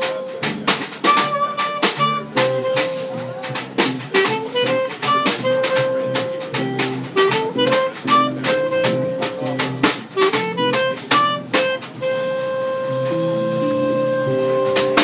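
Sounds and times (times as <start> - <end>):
clarinet melody: 0.0 - 15.0
double bass: 0.0 - 15.0
drum strokes: 0.0 - 15.0
jazz guitar: 0.0 - 15.0.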